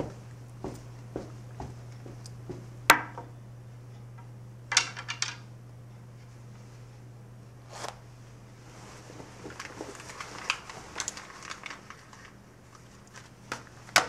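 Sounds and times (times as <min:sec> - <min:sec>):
billiard balls clacking: 0:00.0 - 0:03.4.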